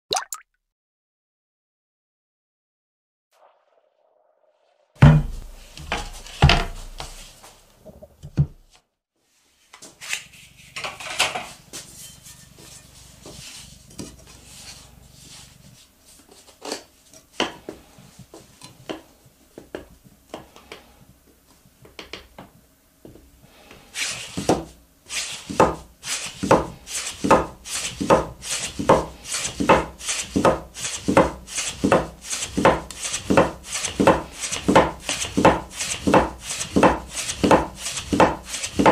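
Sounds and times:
knife cutting dough on wooden board: 26.4 - 38.9.

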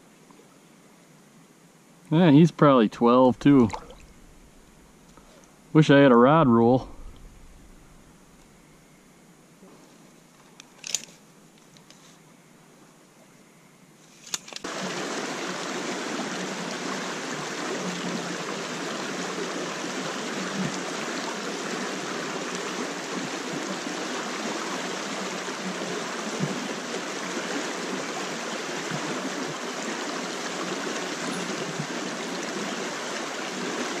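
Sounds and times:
stream rushing over riffles: 2.2 - 5.0, 14.6 - 34.0.

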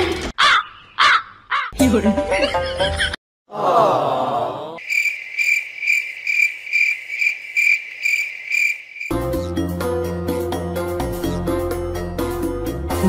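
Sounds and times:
music: 1.8 - 3.1, 9.1 - 13.0
cricket chirping: 4.8 - 9.2.

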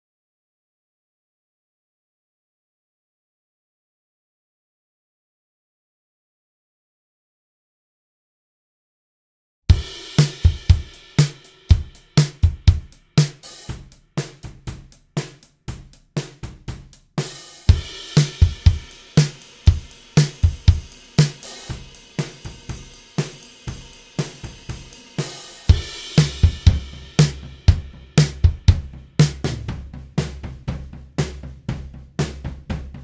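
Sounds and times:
drum kit groove: 9.7 - 33.0.

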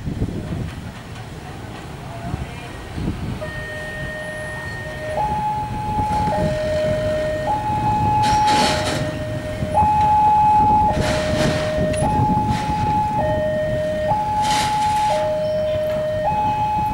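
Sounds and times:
road traffic: 0.0 - 16.9
two-tone electronic warning alarm: 3.4 - 16.9.

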